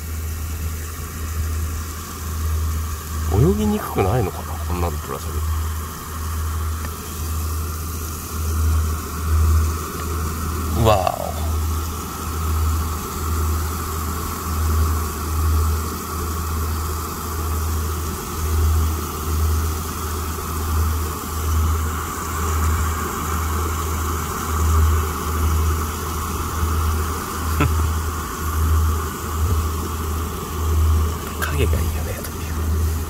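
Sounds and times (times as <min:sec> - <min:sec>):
steady higher whine: 0:03.0 - 0:09.0.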